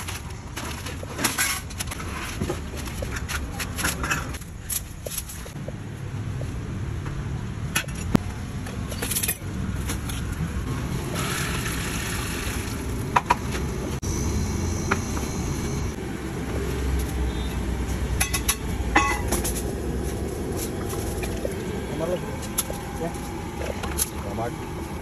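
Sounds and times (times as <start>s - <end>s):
street traffic rumble: 0.0s - 25.0s
ladles clinking against pots: 18.2s - 19.6s.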